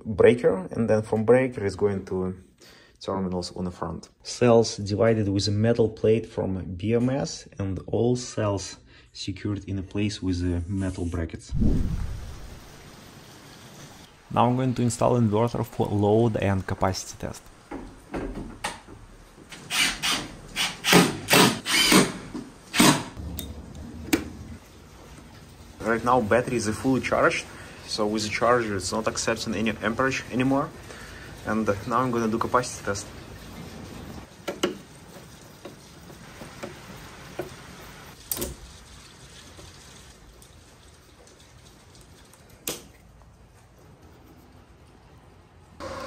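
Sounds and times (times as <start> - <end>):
cordless drill driving screws: 19.6 - 23.2.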